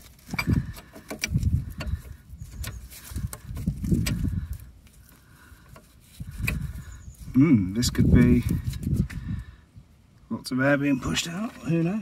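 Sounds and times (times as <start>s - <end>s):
wind buffeting microphone: 0.0s - 4.9s, 5.5s - 10.0s.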